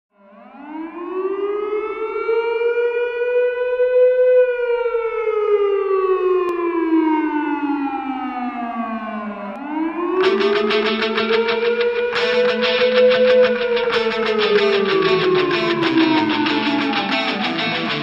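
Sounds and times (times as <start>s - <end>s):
siren wailing: 0.2s - 18.0s.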